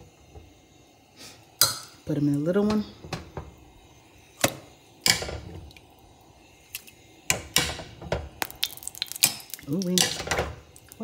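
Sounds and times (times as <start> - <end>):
metal tongs clanking on pot: 9.2 - 10.5.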